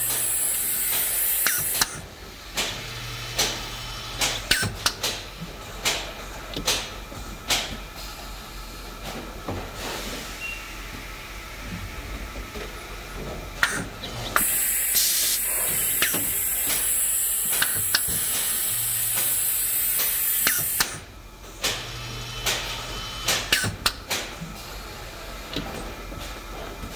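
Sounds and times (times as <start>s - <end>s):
suction pad air hissing: 0.0s - 2.0s, 14.4s - 21.0s
air cylinders clicking and knocking: 0.0s - 2.8s, 4.2s - 7.8s, 13.5s - 21.0s, 23.3s - 24.6s.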